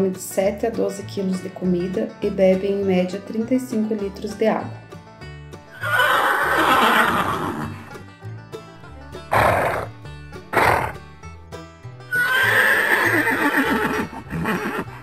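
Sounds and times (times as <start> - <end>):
background music: 0.0 - 15.0
horse whinnying: 5.7 - 7.9, 9.3 - 9.9, 10.5 - 11.0, 12.1 - 15.0.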